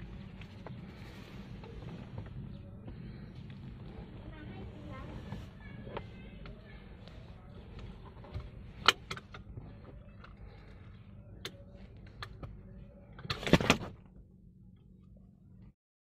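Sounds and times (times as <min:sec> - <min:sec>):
car seat belt clicks and rattles: 0:13.2 - 0:14.0.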